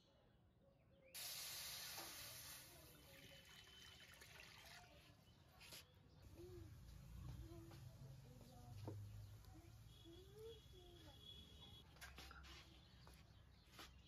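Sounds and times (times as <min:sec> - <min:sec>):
water pouring into a wok: 0:01.8 - 0:05.2.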